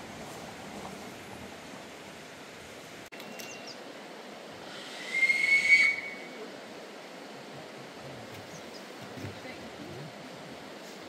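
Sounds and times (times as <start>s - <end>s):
locomotive whistle: 5.0s - 6.4s.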